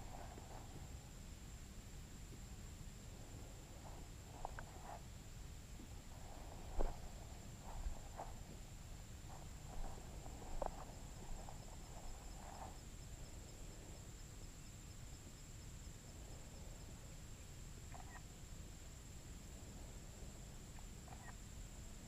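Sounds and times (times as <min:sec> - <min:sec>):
insect high-pitched drone: 0:03.0 - 0:22.0
rustling and handling noises: 0:05.8 - 0:12.9.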